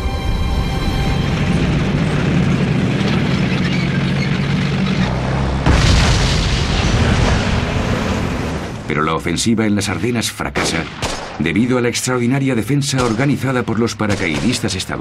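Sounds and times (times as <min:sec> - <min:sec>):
loud explosion: 0:05.5 - 0:08.9.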